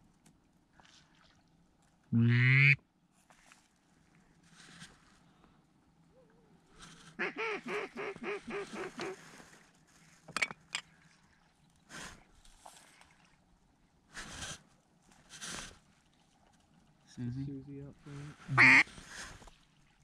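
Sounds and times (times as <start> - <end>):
mallard quacks: 2.2 - 2.8, 7.2 - 9.2, 18.5 - 18.9.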